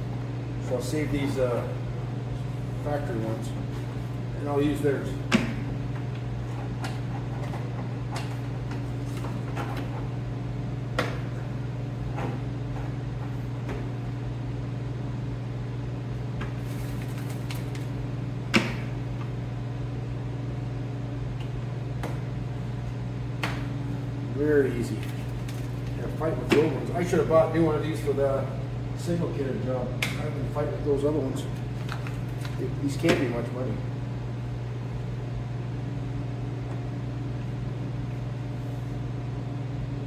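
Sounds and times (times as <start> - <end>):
steady low hum: 0.0 - 40.0.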